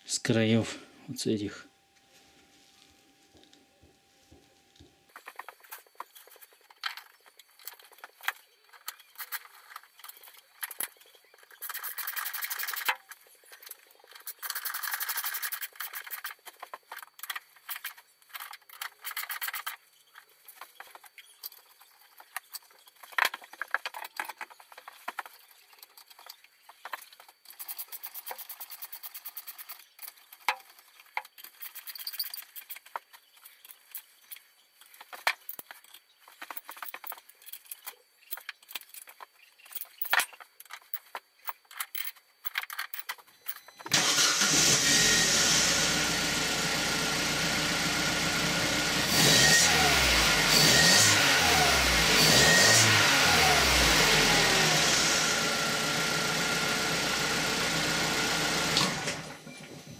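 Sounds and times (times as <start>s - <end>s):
tools clicking and knocking: 5.1s - 19.8s, 20.4s - 43.9s.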